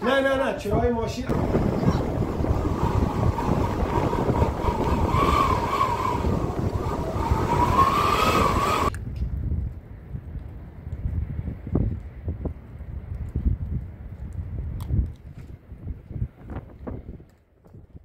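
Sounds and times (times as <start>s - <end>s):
wavering whine: 1.3s - 8.9s.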